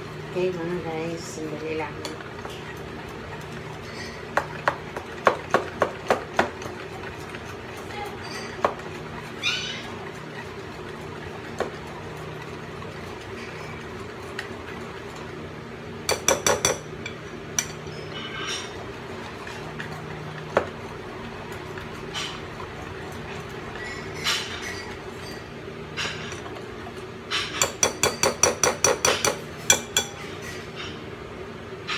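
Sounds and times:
whisk scraping bowl: 0:00.4 - 0:15.4, 0:16.0 - 0:30.7
whisk clinking against bowl: 0:02.0 - 0:11.8, 0:16.1 - 0:20.7, 0:27.4 - 0:30.3.

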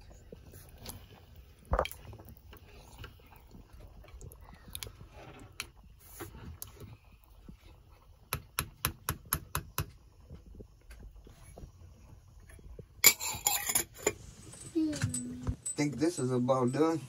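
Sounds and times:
spoon scraping metal pot: 0:13.0 - 0:14.2.

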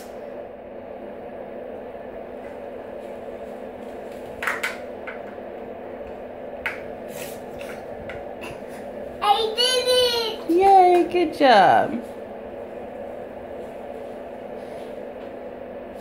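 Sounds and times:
low room hum: 0:00.0 - 0:16.0.

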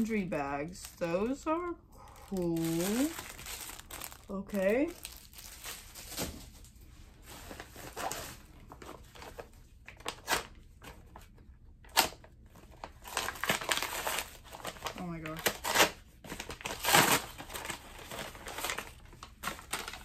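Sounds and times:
paper mailer crinkling and tearing: 0:02.2 - 0:06.4, 0:11.8 - 0:20.0.

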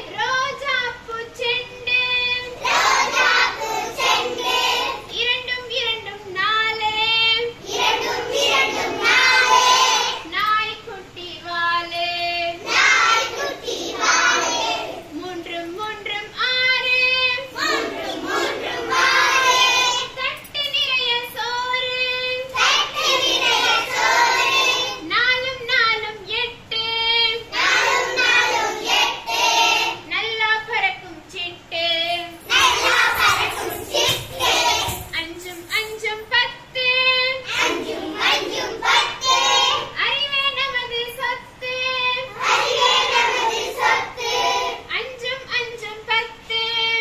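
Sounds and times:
children singing together: 0:02.4 - 0:05.1, 0:07.6 - 0:10.3, 0:12.6 - 0:15.1, 0:17.4 - 0:20.1, 0:22.5 - 0:25.0, 0:27.4 - 0:30.0, 0:32.4 - 0:35.1, 0:37.4 - 0:40.0, 0:42.2 - 0:44.9.

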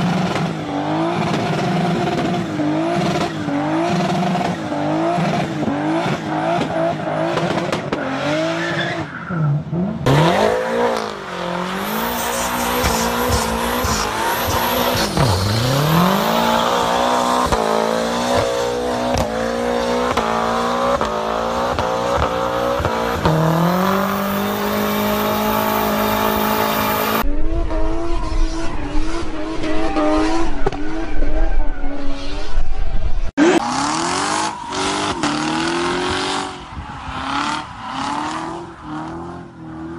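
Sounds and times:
car engines revving hard: 0:00.0 - 0:32.5, 0:33.3 - 0:39.9
tyre squeal: 0:11.4 - 0:17.3.

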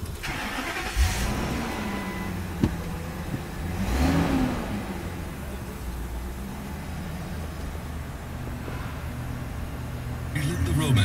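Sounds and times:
car engine starting and idling: 0:00.0 - 0:11.0.

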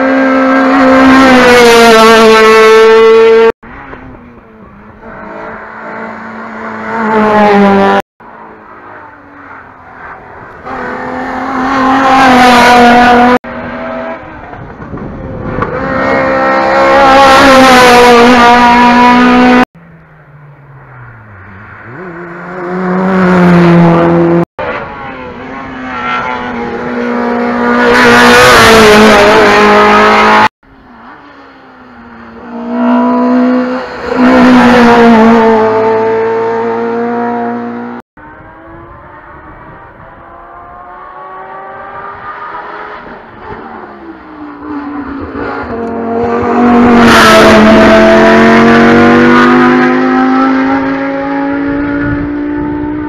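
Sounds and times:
race car engines revving past: 0:00.0 - 0:53.0.

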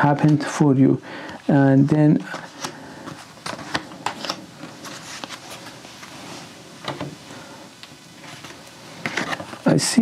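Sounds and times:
cards flicking and rustling: 0:02.2 - 0:05.7.

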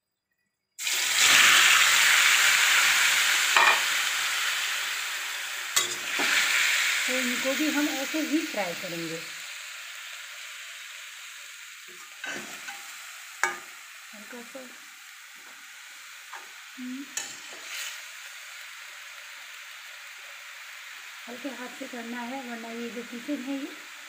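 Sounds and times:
cheese sizzling in hot oil: 0:00.7 - 0:24.0
metal spatula scraping and clicking: 0:17.2 - 0:18.0.

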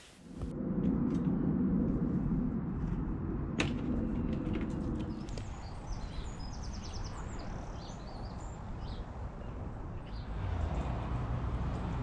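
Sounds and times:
low outdoor rumble: 0:00.2 - 0:10.4
small birds chirping: 0:05.1 - 0:10.4.

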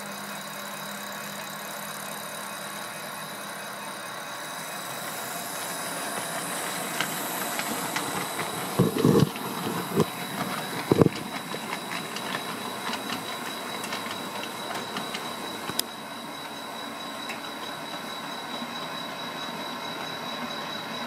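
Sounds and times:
model train motors whirring: 0:00.0 - 0:21.0
wheels clicking over rail joints: 0:04.9 - 0:16.0.

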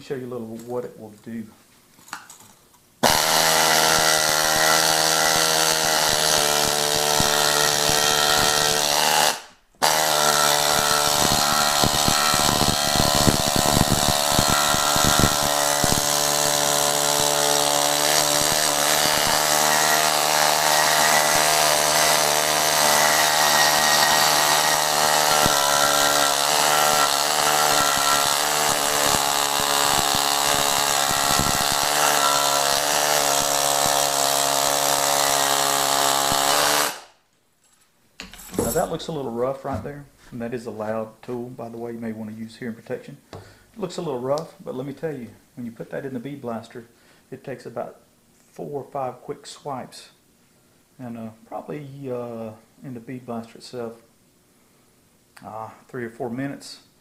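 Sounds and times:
needle scaler hammering on metal: 0:05.8 - 0:16.2, 0:17.9 - 0:33.9.

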